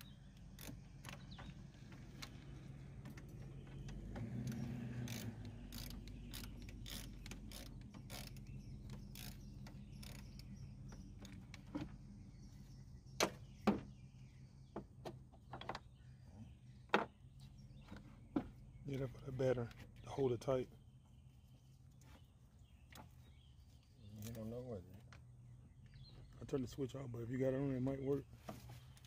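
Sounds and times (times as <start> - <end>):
ratchet wrench clicking: 4.4 - 10.5.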